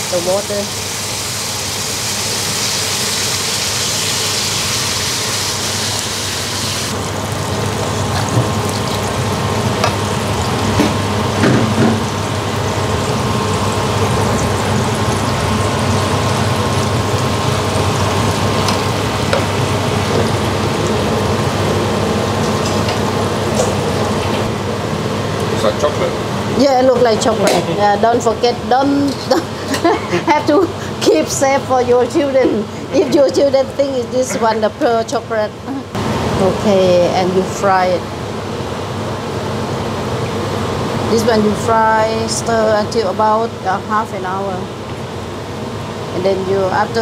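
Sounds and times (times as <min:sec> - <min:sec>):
sauce sizzling in a wok: 0:00.0 - 0:24.0.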